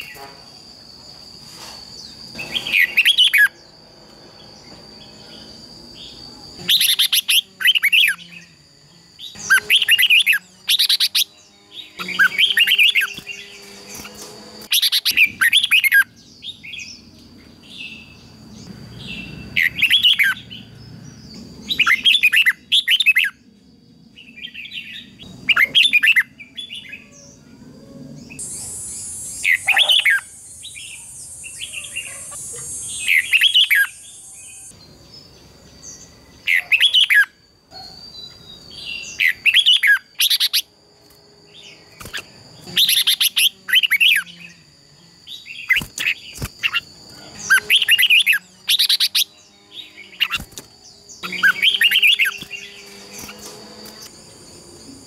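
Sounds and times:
bulbuls singing: 2.0s - 23.4s, 24.2s - 27.4s, 28.1s - 55.0s
high hiss: 28.4s - 34.7s.

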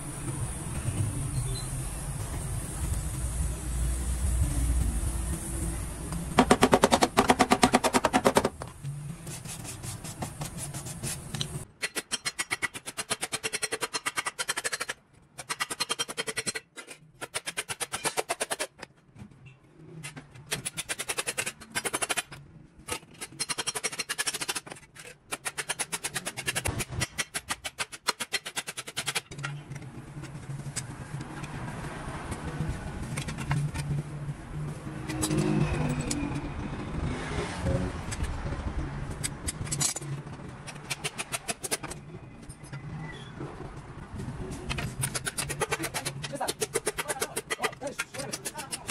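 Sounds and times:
welding torch flame rumbling: 1.8s - 7.2s.

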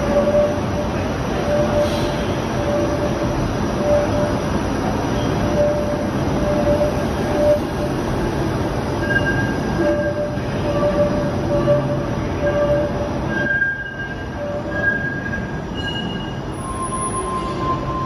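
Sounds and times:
streetcar rumble: 0.0s - 18.0s
steel wheels squealing: 9.0s - 18.0s.

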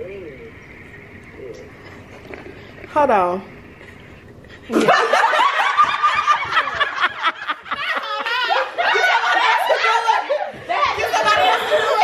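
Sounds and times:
group of people laughing: 4.6s - 12.0s.

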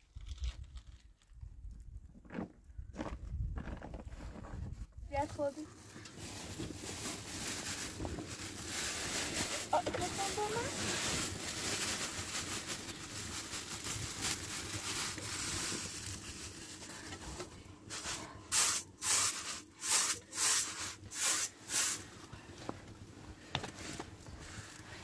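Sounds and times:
rice poured onto metal tray: 17.9s - 22.0s.

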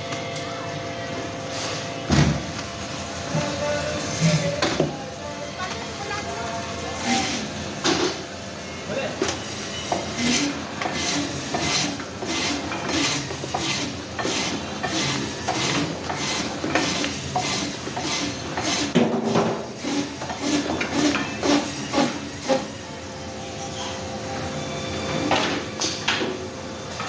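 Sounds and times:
band saw cutting frozen fish: 6.9s - 7.6s, 9.8s - 22.8s.

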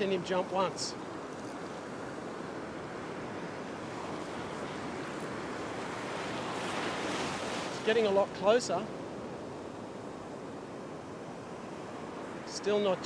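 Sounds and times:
ocean surf breaking: 0.0s - 13.0s.

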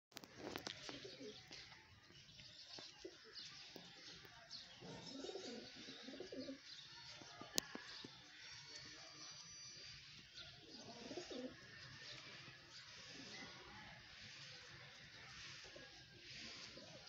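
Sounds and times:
birds chirping: 0.2s - 17.0s
pigeons cooing: 4.8s - 6.6s, 10.6s - 11.6s.

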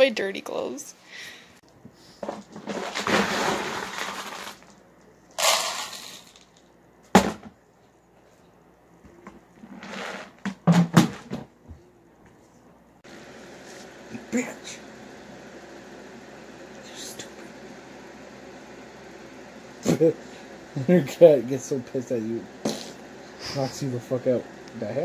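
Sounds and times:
plastic bin rustling and scraping: 2.2s - 4.8s.

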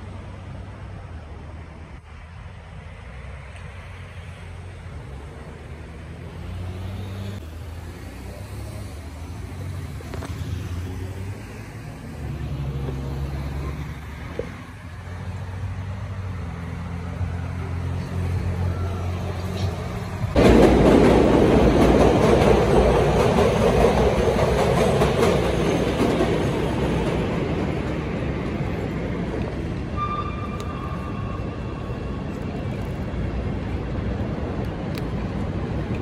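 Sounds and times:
bus engine drone: 0.0s - 36.0s
street traffic: 0.0s - 36.0s
elevated train rumble: 18.0s - 36.0s.

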